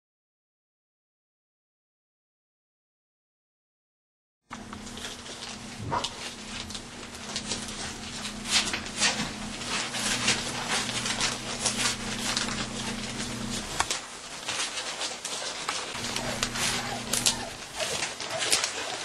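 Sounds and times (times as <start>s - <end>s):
low hum: 4.5s - 13.9s, 16.0s - 18.1s
puppies nursing smacks: 4.5s - 19.0s.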